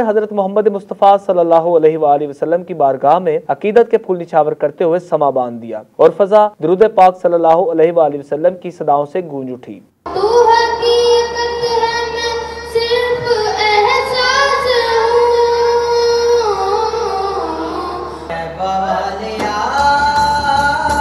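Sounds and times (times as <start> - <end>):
boy singing into a microphone: 10.1 - 21.0.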